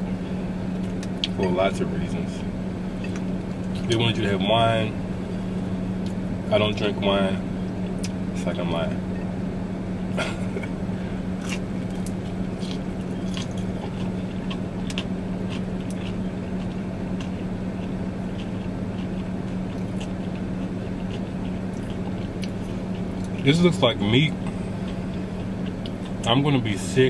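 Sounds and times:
car engine hum: 0.0s - 27.0s
wet chewing noises: 11.4s - 26.9s.

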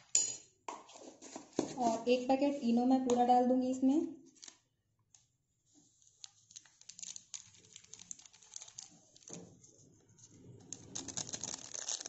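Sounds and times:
sachet crinkling: 5.9s - 9.6s, 10.6s - 12.0s.

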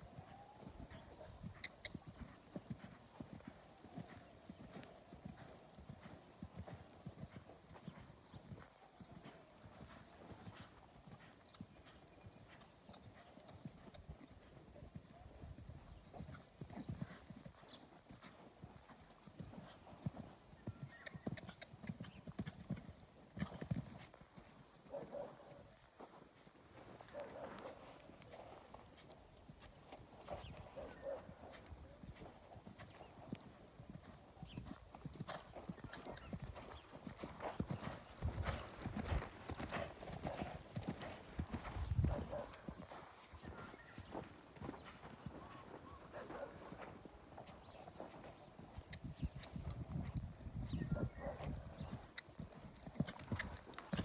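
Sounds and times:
hoofbeats on sand: 0.2s - 13.9s, 24.9s - 48.6s.

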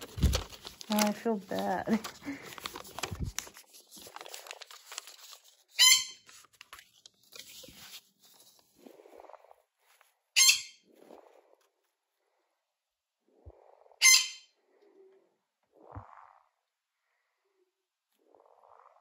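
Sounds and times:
paper rustling: 0.0s - 8.8s
bird squawking shrilly: 5.8s - 6.2s, 10.4s - 10.8s, 14.0s - 14.4s.

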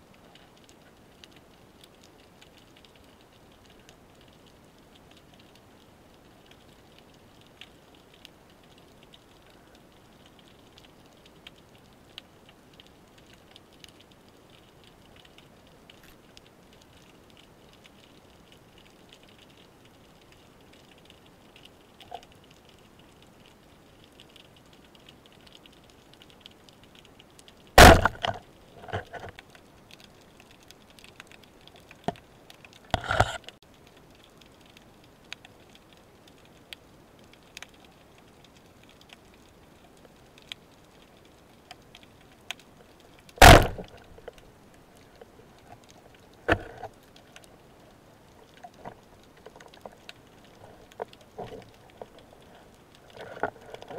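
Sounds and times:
faint underwater crackling hiss: 0.0s - 53.9s
small ticks: 0.0s - 53.9s
sharp knocks: 27.8s - 28.4s, 43.4s - 43.9s.

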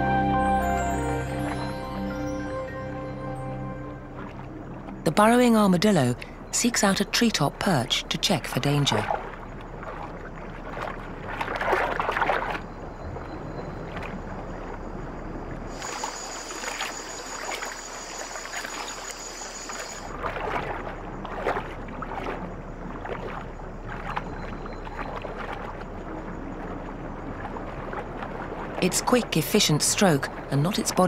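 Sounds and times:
high-pitched hum: 0.0s - 8.7s, 15.7s - 20.2s
water splashing from paddling: 3.2s - 31.0s.

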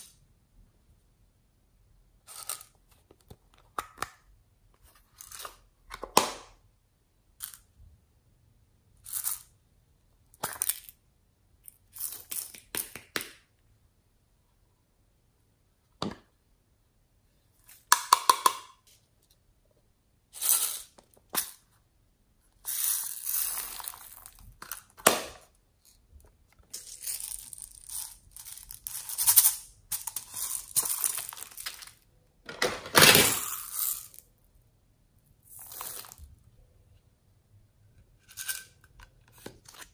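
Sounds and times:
beads rattling and pouring: 22.6s - 24.9s, 26.7s - 32.0s, 33.1s - 34.2s, 35.4s - 36.4s.

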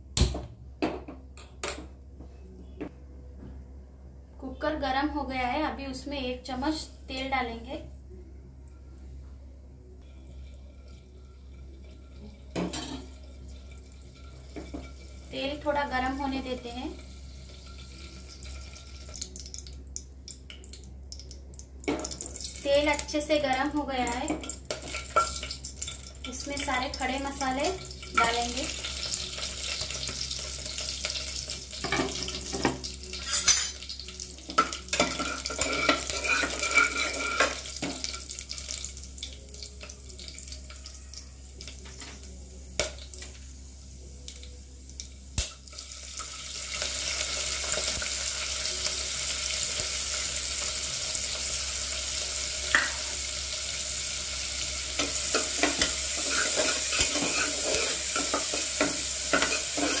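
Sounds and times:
oil sizzling: 10.1s - 60.0s
onions frying sizzle: 10.2s - 60.0s
spoon scraping metal pot: 35.0s - 37.6s, 55.8s - 58.3s.

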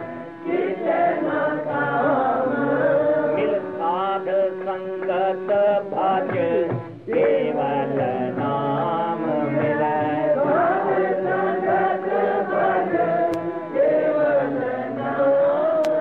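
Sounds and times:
person chanting a hymn: 0.0s - 16.0s.

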